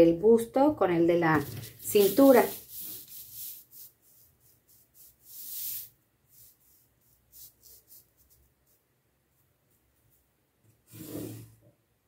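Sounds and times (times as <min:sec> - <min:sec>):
drawing tool scratching paper: 0:01.4 - 0:08.8, 0:10.9 - 0:11.5.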